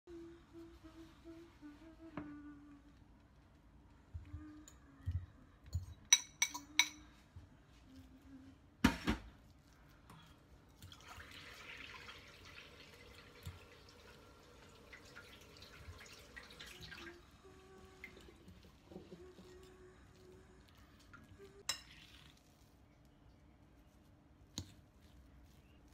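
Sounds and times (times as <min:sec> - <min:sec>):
fork clinking on ceramic bowl: 0:05.7 - 0:07.0.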